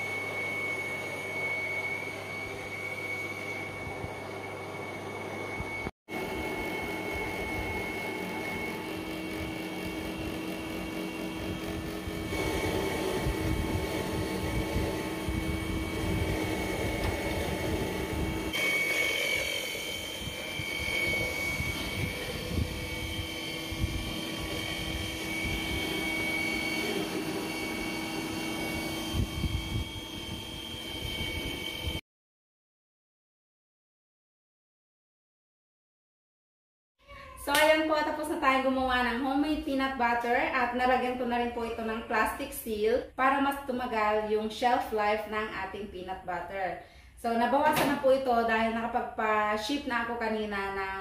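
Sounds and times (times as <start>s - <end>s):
colloid mill motor whining: 0.0s - 32.0s.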